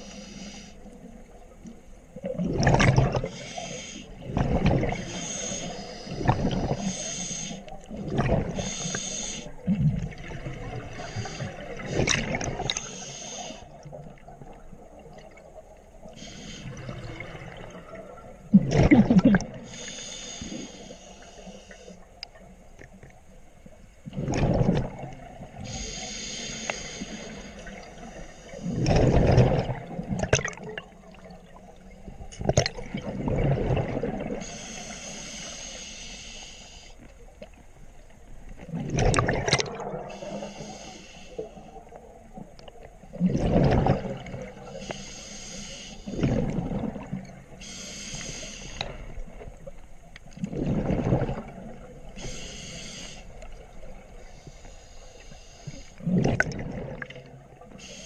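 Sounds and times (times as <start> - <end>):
regulator inhale hiss: 0.0 - 1.2, 3.2 - 4.3, 5.0 - 9.7, 10.9 - 14.0, 16.0 - 17.4, 19.5 - 22.5, 25.5 - 28.9, 34.4 - 37.6, 40.0 - 42.1, 44.3 - 46.5, 47.4 - 49.9, 52.0 - 56.1, 57.6 - 58.0
exhaled bubbles bursting: 2.2 - 3.3, 4.2 - 5.1, 7.9 - 8.6, 9.6 - 12.8, 16.7 - 19.6, 24.1 - 25.6, 28.6 - 31.6, 32.4 - 34.4, 38.6 - 40.2, 43.1 - 44.7, 46.1 - 47.4, 50.4 - 51.9, 56.0 - 57.6.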